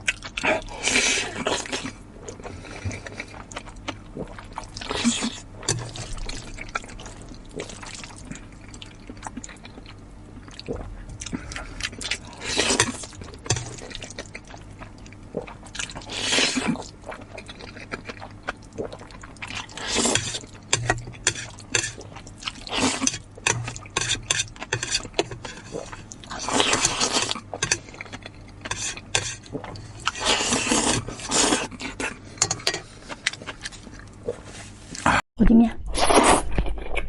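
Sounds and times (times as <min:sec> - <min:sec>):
noodles being slurped: 0:18.8 - 0:28.0, 0:28.6 - 0:35.1.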